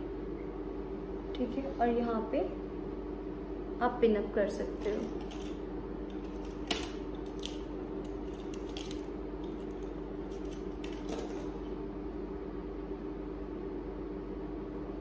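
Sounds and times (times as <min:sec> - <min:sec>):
steady low hum: 0:00.0 - 0:15.0
hair rustling and clicks: 0:04.8 - 0:11.8.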